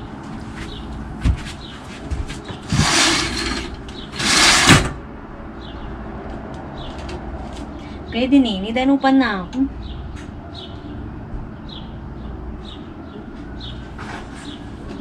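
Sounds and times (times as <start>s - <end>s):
sliding door swishing: 2.6s - 5.0s.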